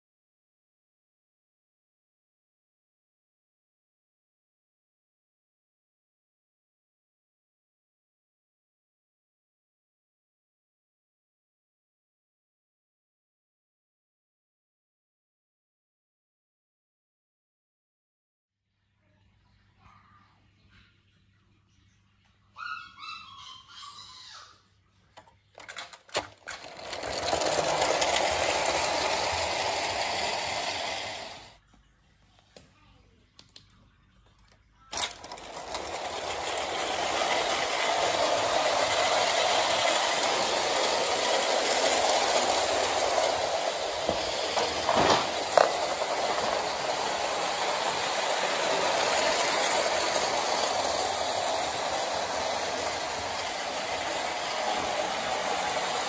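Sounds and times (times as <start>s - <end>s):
clockwork toy train running: 25.2s - 31.6s, 34.8s - 56.0s.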